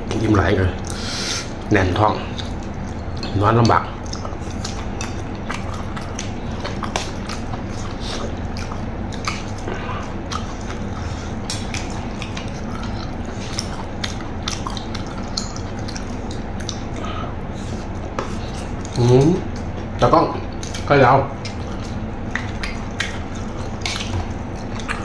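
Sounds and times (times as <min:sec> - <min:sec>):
person chewing food: 0:00.0 - 0:25.0
steady low hum: 0:00.0 - 0:25.0.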